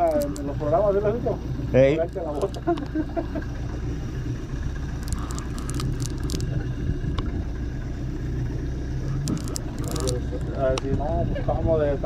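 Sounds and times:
light clicks and scrapes: 0:00.0 - 0:00.6, 0:02.1 - 0:03.0, 0:05.0 - 0:06.6, 0:09.2 - 0:10.9
boat engine humming: 0:00.0 - 0:12.0.

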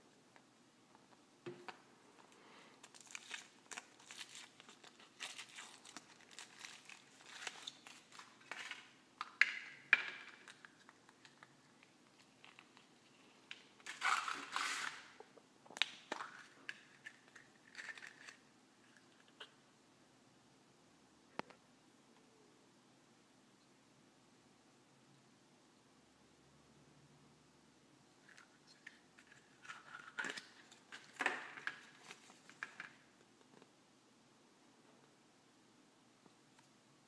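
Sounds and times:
foil wrapper crinkling and tearing: 0:02.8 - 0:08.9, 0:13.8 - 0:15.2, 0:15.8 - 0:18.5
plastic capsule being handled: 0:28.2 - 0:33.0.

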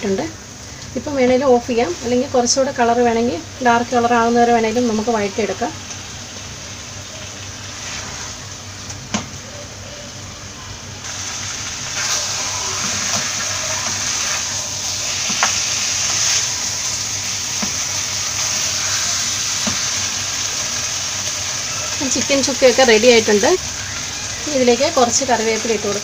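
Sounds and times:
chicken sizzling in a pan: 0:00.1 - 0:26.0
spatula tapping a pan: 0:17.6 - 0:17.8, 0:19.6 - 0:19.9.

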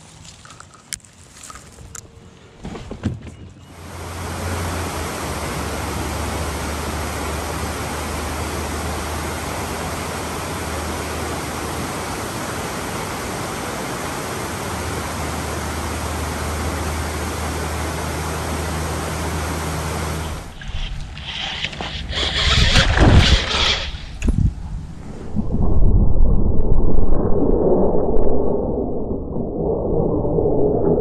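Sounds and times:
river rushing over dam: 0:03.9 - 0:20.6.

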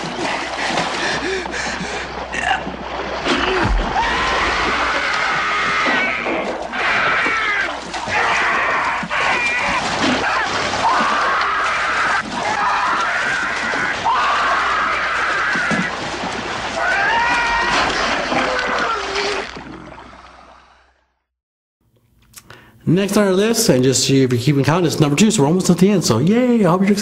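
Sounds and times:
water splashing on boat deck: 0:00.0 - 0:20.6
man screaming in agony: 0:03.4 - 0:15.9, 0:16.8 - 0:19.4.

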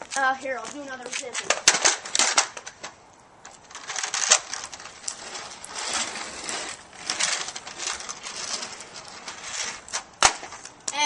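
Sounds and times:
wheels rolling over rough asphalt: 0:00.0 - 0:11.0.

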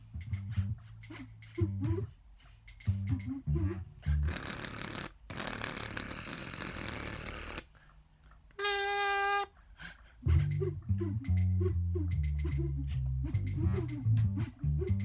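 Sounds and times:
plucked-string music: 0:10.3 - 0:15.0.

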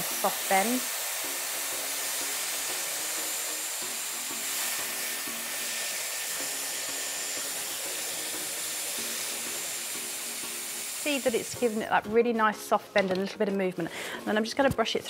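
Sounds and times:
hair styler blowing hot air: 0:00.0 - 0:12.0.

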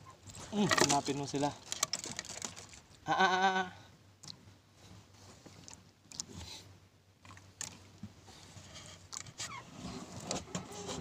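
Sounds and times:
fishing line clicks and rustles: 0:00.6 - 0:03.0.

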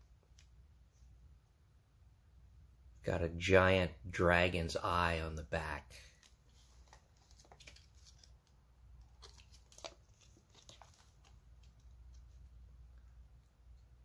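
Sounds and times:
plastic sleeves crinkling: 0:06.1 - 0:12.6.

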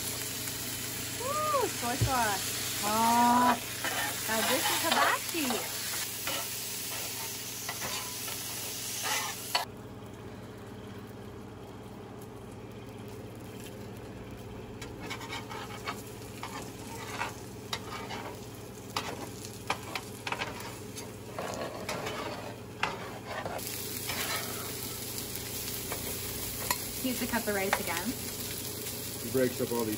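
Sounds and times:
food sizzling on griddle: 0:00.0 - 0:09.7, 0:10.4 - 0:29.9
metal spatulas scraping griddle: 0:03.8 - 0:05.6, 0:06.2 - 0:08.2, 0:09.0 - 0:09.6, 0:15.0 - 0:18.4, 0:19.0 - 0:24.7.

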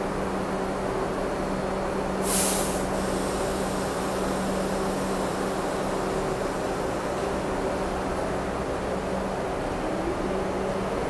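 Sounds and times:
subway train humming: 0:00.0 - 0:11.0
brake air hiss: 0:02.2 - 0:07.5.

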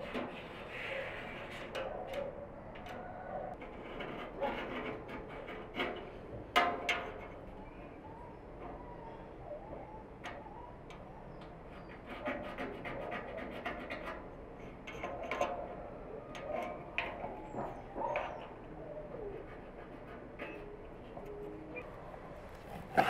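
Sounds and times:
metal scribe scratching paint: 0:00.0 - 0:02.2, 0:03.6 - 0:06.2, 0:11.7 - 0:15.7, 0:19.2 - 0:21.4.

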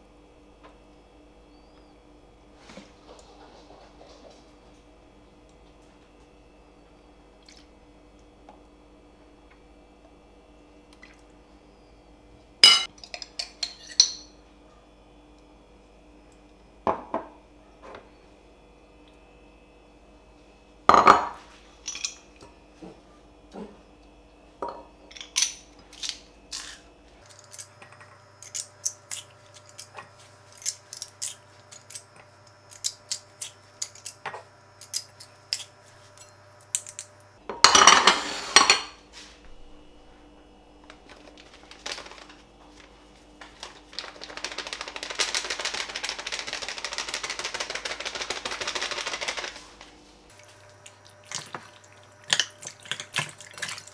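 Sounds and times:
utensils clinking against glass bowl: 0:12.6 - 0:14.4, 0:20.9 - 0:22.3, 0:24.6 - 0:25.7, 0:32.7 - 0:39.0, 0:51.3 - 0:53.9
stirring noise: 0:43.4 - 0:53.9.

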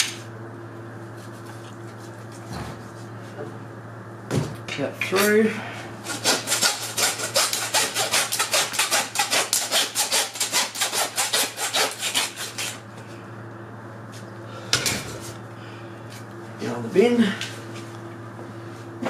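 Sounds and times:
hacksaw cutting bone: 0:06.0 - 0:12.8.

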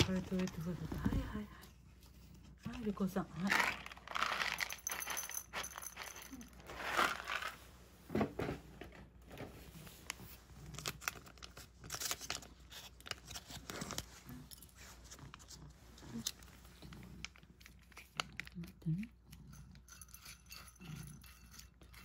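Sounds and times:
plastic packaging crinkling: 0:03.4 - 0:05.2, 0:10.6 - 0:14.2.

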